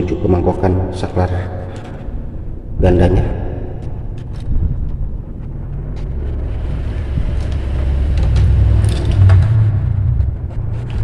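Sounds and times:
low rumble: 0.0 - 11.0.

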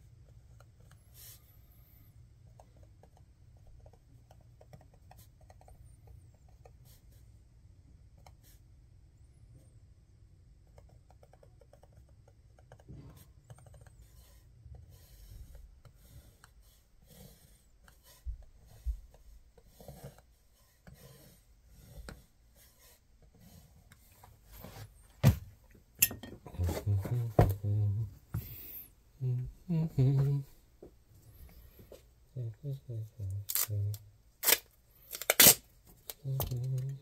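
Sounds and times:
marker scratching on paper: 10.7 - 25.0.

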